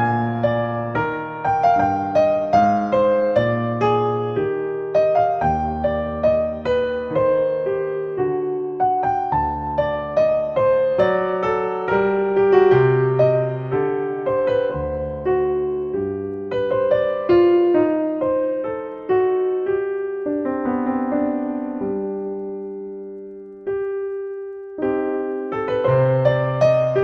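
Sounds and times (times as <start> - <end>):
solo piano: 0.0 - 27.0.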